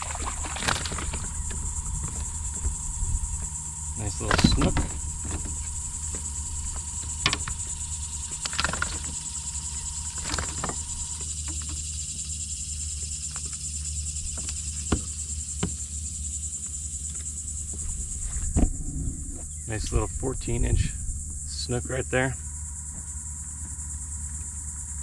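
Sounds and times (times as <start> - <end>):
high-pitched insect chorus: 0.0 - 25.0
fishing tackle clicks and knocks: 4.1 - 9.2.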